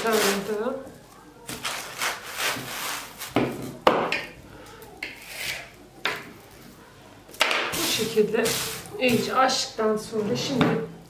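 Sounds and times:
cling film rustling and crinkling: 0:00.0 - 0:03.4
knife scraping cutting board: 0:01.5 - 0:03.7, 0:05.0 - 0:05.8.

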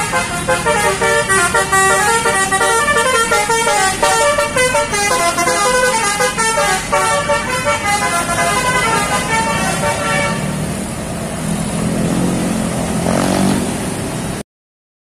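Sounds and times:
multi-tone musical bus horn: 0:00.0 - 0:10.6.

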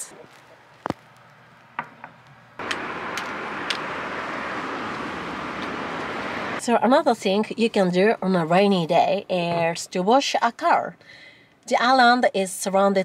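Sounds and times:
wind: 0:00.0 - 0:13.0
road noise: 0:00.1 - 0:09.5.

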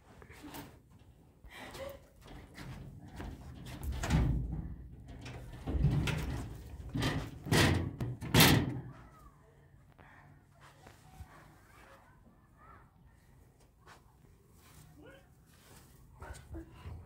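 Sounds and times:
wooden doors banging and rattling: 0:02.4 - 0:09.0.

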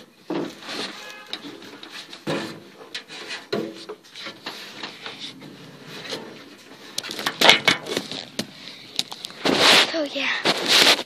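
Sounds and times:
phone rubbing and rustling: 0:09.1 - 0:11.0.

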